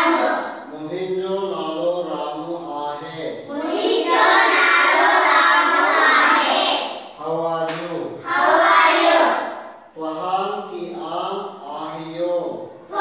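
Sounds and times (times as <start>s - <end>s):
children reciting in chorus: 0.0s - 0.9s, 1.5s - 13.0s
man speaking: 0.7s - 3.5s, 7.2s - 8.2s, 10.0s - 12.8s.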